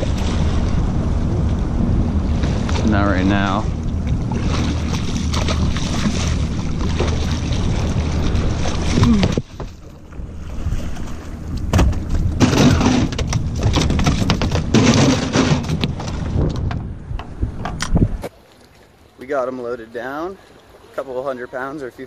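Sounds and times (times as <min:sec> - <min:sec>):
steady low rumble: 0:00.0 - 0:18.3
knocks and thumps on boat: 0:02.3 - 0:18.3.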